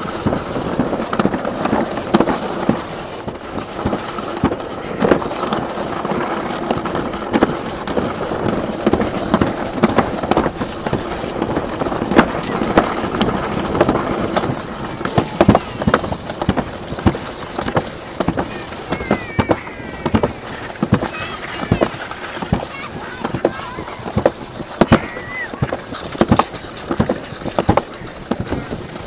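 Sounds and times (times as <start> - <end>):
sled clacking and knocking: 0.0 - 29.0
sled scraping rumble: 0.0 - 29.0.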